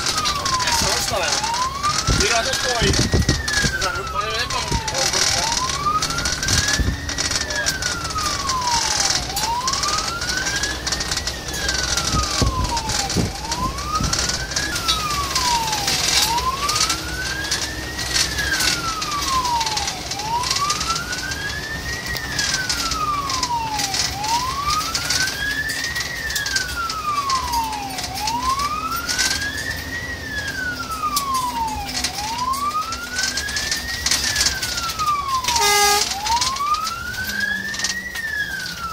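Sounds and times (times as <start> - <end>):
fire engine siren wailing: 0.0 - 38.9
truck engine and road noise: 0.0 - 38.9.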